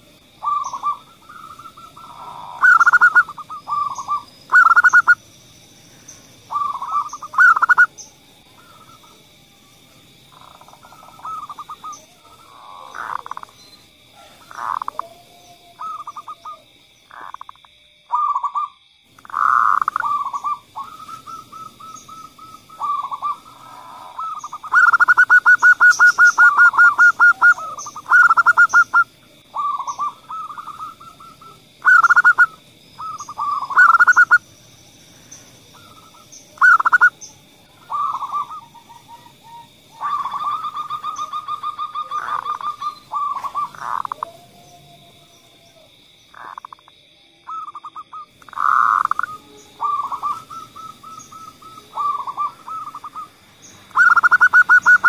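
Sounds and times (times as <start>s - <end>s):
doves cooing: 0.0s - 5.2s, 6.0s - 9.4s, 10.2s - 34.5s, 35.1s - 46.9s, 47.5s - 55.0s
faint steady high tone: 49.0s - 55.0s.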